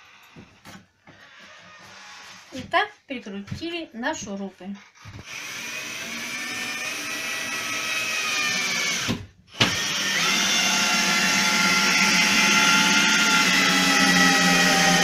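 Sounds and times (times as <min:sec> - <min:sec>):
drill driver motor whining: 0:04.8 - 0:15.0.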